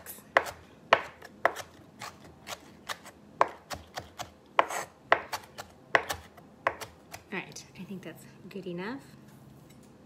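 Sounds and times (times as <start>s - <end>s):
knife chopping on cutting board: 0.0s - 7.3s.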